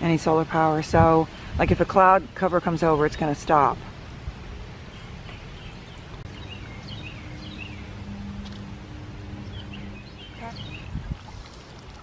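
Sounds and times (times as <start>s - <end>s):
birds chirping: 4.6s - 12.0s
fountain water splashing: 10.6s - 12.0s.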